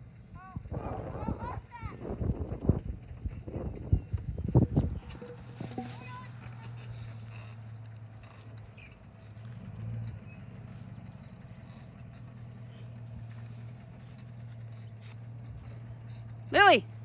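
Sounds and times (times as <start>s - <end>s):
engine running at low speed: 0.0s - 17.0s.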